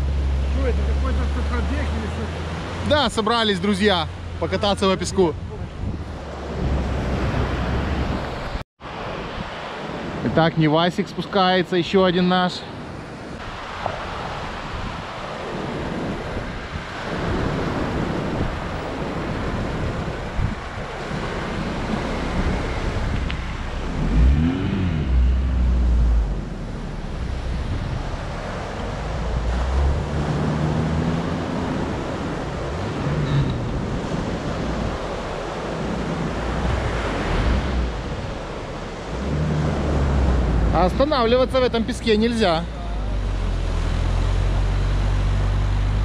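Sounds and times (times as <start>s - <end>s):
surf: 0.0s - 46.0s
wind buffeting microphone: 2.4s - 10.4s, 12.8s - 42.6s
car engine revving: 21.0s - 35.0s, 35.6s - 46.0s.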